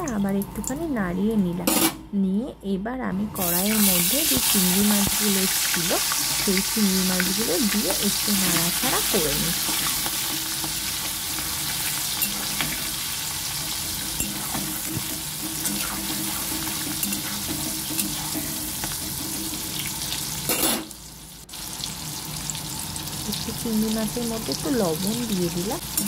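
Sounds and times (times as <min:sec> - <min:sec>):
spatula scraping wok: 0:03.4 - 0:20.9
prawns sizzling in oil: 0:03.4 - 0:26.0.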